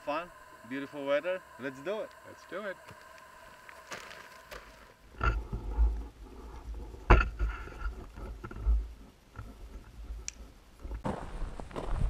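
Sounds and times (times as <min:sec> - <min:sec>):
footsteps through brush and gravel: 0:02.8 - 0:05.1, 0:11.0 - 0:12.0.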